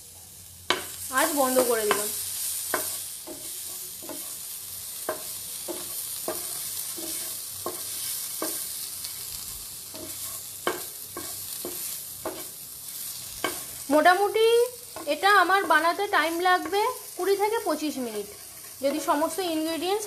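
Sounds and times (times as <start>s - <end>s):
chicken sizzling in a frying pan: 0.0s - 20.0s
spatula scraping a pan: 1.6s - 13.9s, 17.9s - 19.4s.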